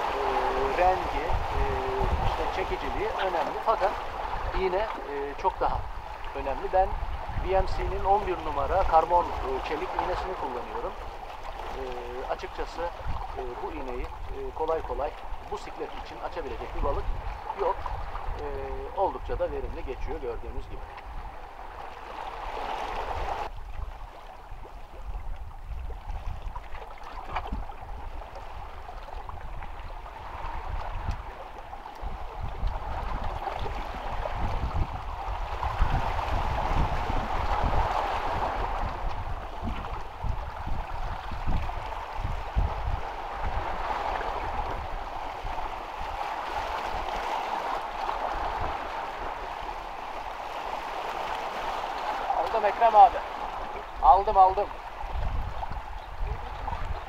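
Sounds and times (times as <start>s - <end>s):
waves washing against rocks: 0.0s - 19.9s, 20.6s - 23.5s, 26.6s - 57.0s
wind rumbling on microphone: 0.0s - 57.0s.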